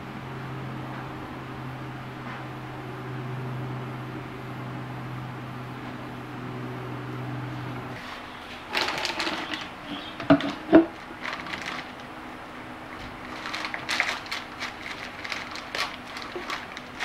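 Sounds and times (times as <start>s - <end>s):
low hum: 0.0s - 8.4s
utensils and containers clattering: 8.7s - 12.0s, 13.2s - 17.0s.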